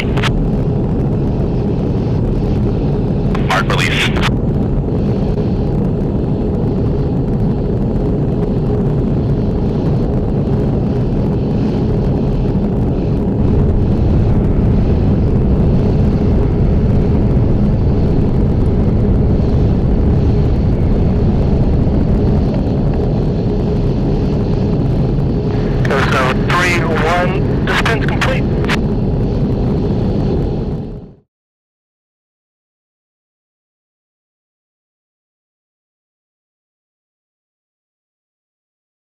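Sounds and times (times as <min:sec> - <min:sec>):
jet aircraft rumble: 0:00.0 - 0:31.3
faint high whine: 0:24.0 - 0:28.8.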